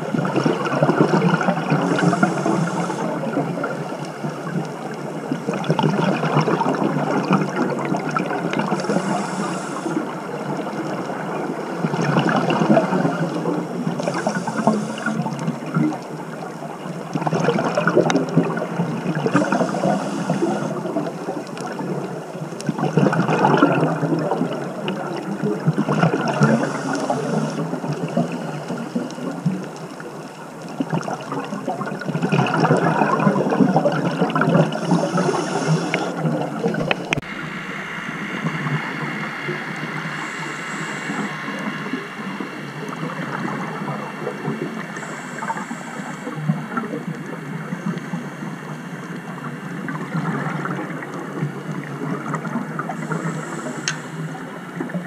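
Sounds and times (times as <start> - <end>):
exhaled bubbles gurgling underwater: 0.0 - 55.0
regulator inhale hiss: 1.5 - 3.7, 6.8 - 11.0, 11.6 - 15.8, 19.2 - 21.8, 26.2 - 30.0, 34.7 - 51.8, 52.7 - 55.0.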